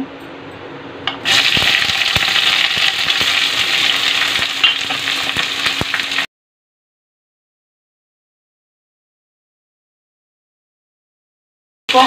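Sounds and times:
onions sizzling in hot oil: 0:01.2 - 0:06.3.

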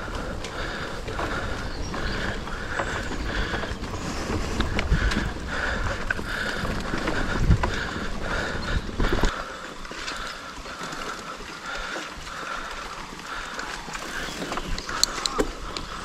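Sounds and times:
wind buffeting microphone: 0:00.0 - 0:09.4.

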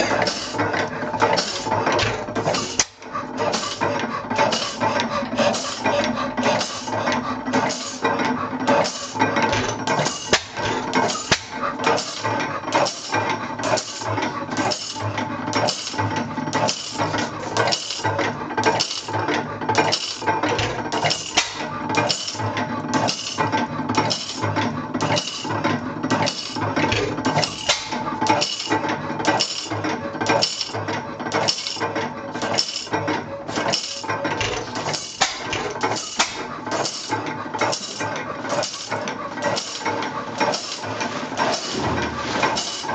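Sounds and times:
stationary engine clattering: 0:00.0 - 0:42.9.

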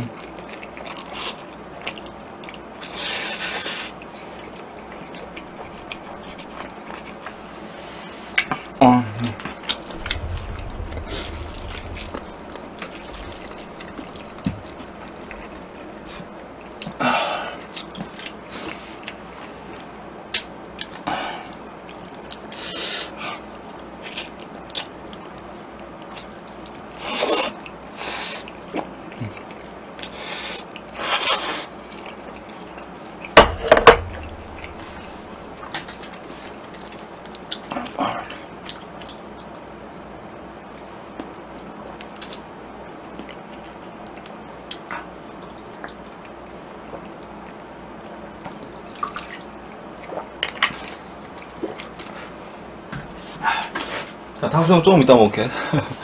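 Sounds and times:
eating sounds: 0:00.0 - 0:07.8, 0:09.4 - 0:19.2
sharp knocks: 0:33.4 - 0:35.9.

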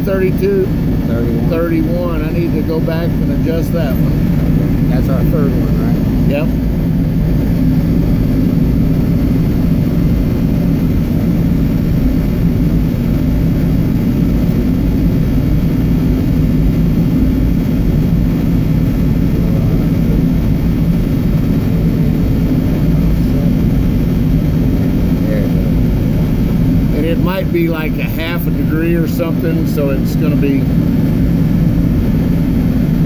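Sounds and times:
low machinery drone: 0:00.0 - 0:33.0.

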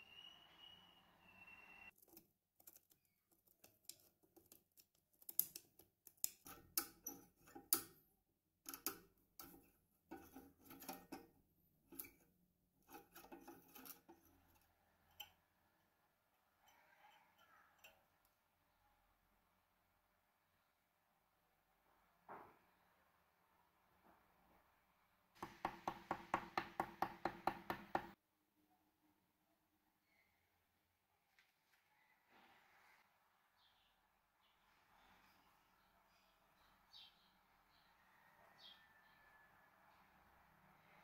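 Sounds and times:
metal clicks and scrapes: 0:01.9 - 0:08.0, 0:08.6 - 0:15.4.

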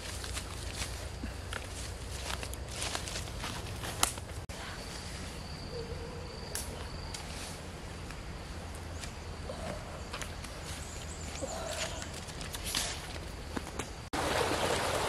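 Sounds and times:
footsteps through grass and leaves: 0:00.0 - 0:05.2, 0:10.1 - 0:13.8
faint bird calls: 0:09.4 - 0:12.2.

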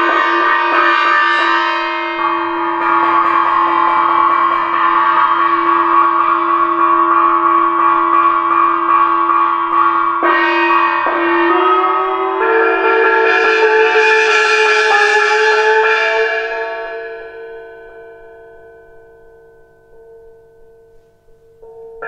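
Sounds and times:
held chords over low drone: 0:11.6 - 0:17.0.

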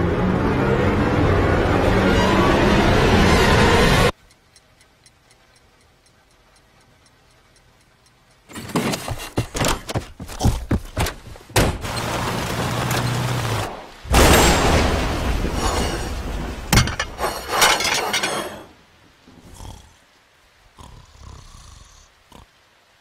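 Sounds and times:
rushing noise: 0:00.0 - 0:04.1
clock ticking: 0:04.1 - 0:10.5.

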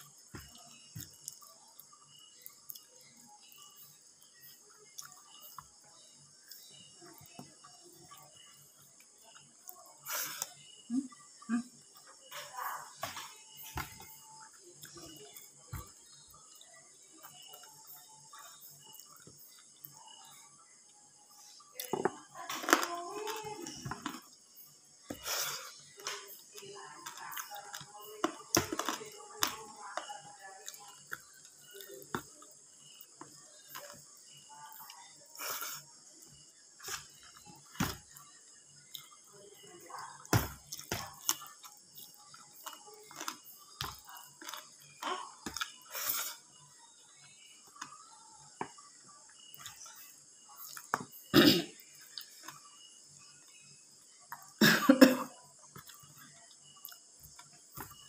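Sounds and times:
mouth and finger eating sounds: 0:40.6 - 0:44.8
woman coughing: 0:51.3 - 0:51.8, 0:54.6 - 0:55.3.

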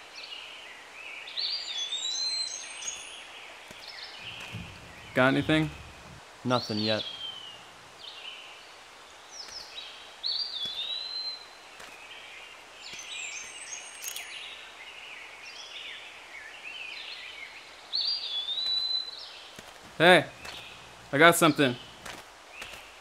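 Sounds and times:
bird chirps: 0:01.4 - 0:08.4, 0:09.4 - 0:11.5, 0:18.0 - 0:19.4, 0:20.2 - 0:22.9.

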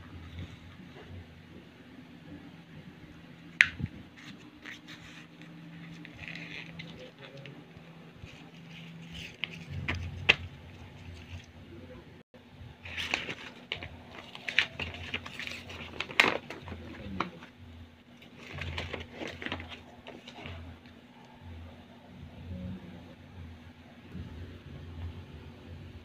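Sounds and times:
paper pack rustling and crinkling: 0:04.1 - 0:11.5, 0:12.8 - 0:17.5, 0:18.1 - 0:20.7.

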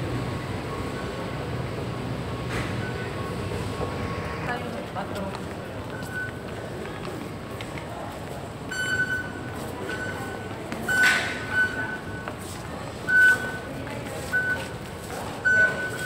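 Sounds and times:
murmur of crowd: 0:00.0 - 0:16.0
rush of noise: 0:03.2 - 0:05.0
ticket gates beeping: 0:08.6 - 0:16.0.

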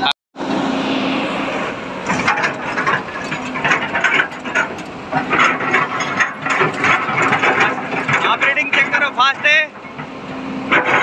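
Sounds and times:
excavator diesel engine running: 0:00.4 - 0:11.0
metallic clicking and rattling: 0:02.1 - 0:10.1.

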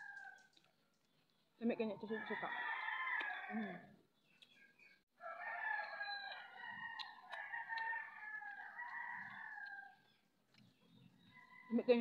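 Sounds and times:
rooster crowing: 0:02.2 - 0:03.7, 0:05.2 - 0:10.1.

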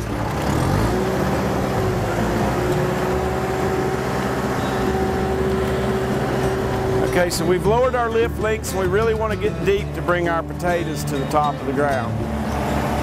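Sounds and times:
tractor diesel engine under load: 0:00.0 - 0:13.0
steady whine: 0:01.0 - 0:08.7.

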